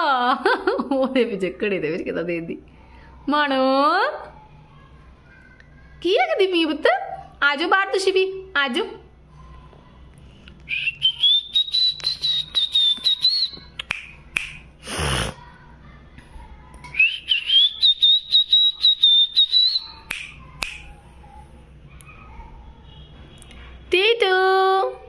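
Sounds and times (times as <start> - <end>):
cockatiel whistling: 10.7 - 13.8, 17.0 - 20.4.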